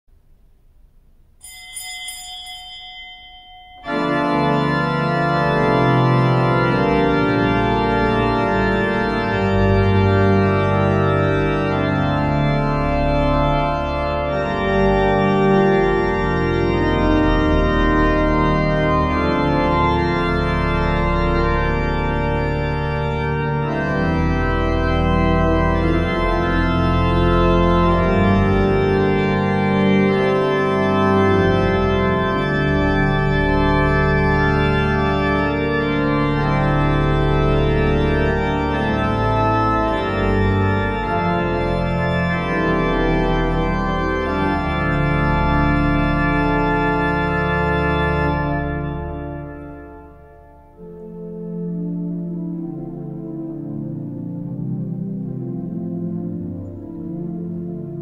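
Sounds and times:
brief ringing sound: 0:01.4 - 0:04.2
pipe organ chords: 0:03.8 - 0:58.0.

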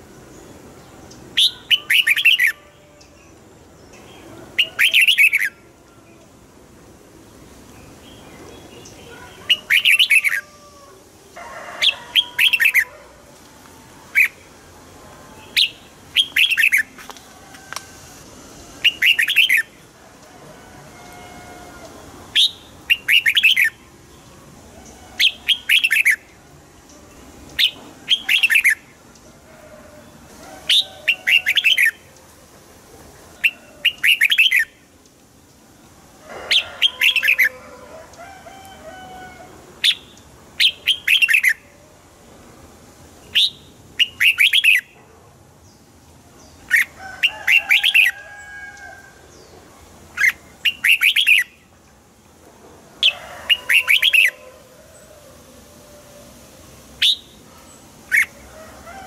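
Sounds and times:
bird chirping: 0:00.4 - 0:05.6, 0:15.3 - 0:17.0, 0:18.8 - 0:19.9, 0:22.3 - 0:29.2, 0:43.2 - 0:45.0, 0:49.3 - 0:51.8, 0:57.0 - 0:58.4.

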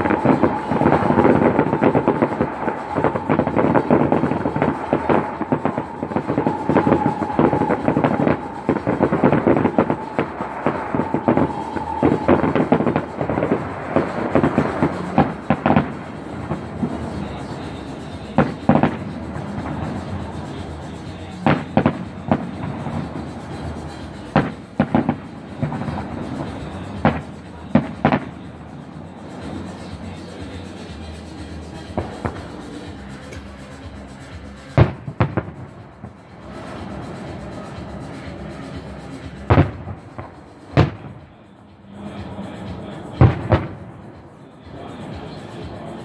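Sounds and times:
firework booms: 0:00.0 - 0:20.8, 0:21.4 - 0:28.7, 0:34.8 - 0:37.4, 0:39.5 - 0:41.2, 0:43.2 - 0:44.1
fireworks crackling and banging: 0:00.0 - 0:46.0.

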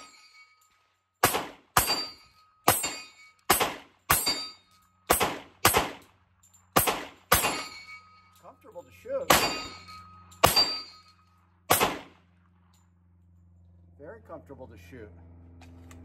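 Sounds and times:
pistol shots: 0:01.2 - 0:06.2, 0:06.8 - 0:07.8, 0:09.3 - 0:09.8, 0:10.4 - 0:11.0, 0:11.7 - 0:12.3.

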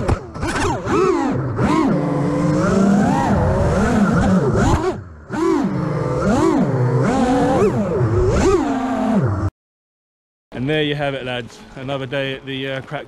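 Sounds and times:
drone motors whining: 0:00.0 - 0:09.5.

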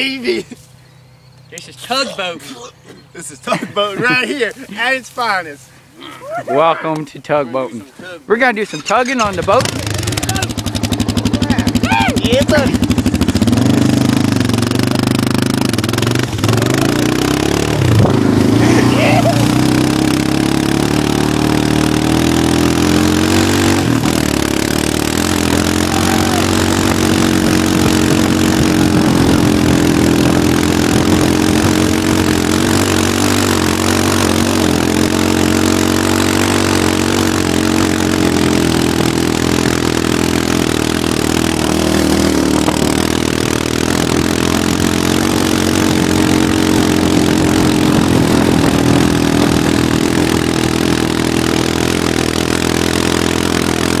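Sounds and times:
quad engine running: 0:09.0 - 0:54.0
wind and grass noise: 0:25.1 - 0:35.2, 0:39.0 - 0:52.4.

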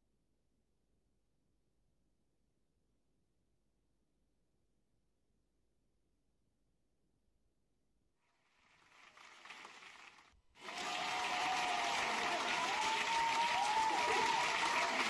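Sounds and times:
audience applauding: 0:08.5 - 0:15.0
wavering cheers: 0:10.6 - 0:15.0.

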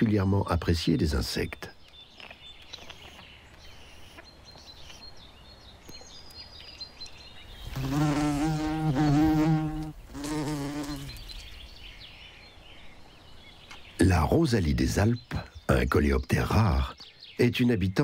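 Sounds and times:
wasp buzzing in flight: 0:07.7 - 0:11.3.

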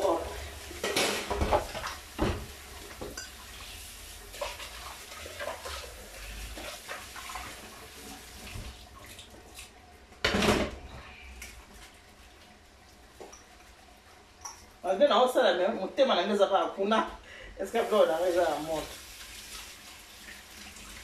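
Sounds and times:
pot clinking against metal sink: 0:03.0 - 0:03.4.

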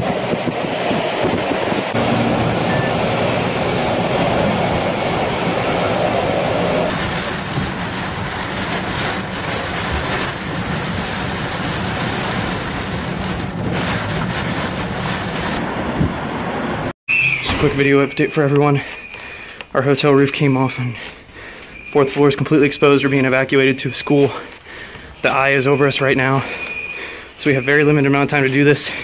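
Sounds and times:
driving rain: 0:00.0 - 0:16.9
strong wind: 0:00.0 - 0:16.9
wind buffeting microphone: 0:00.0 - 0:16.9.

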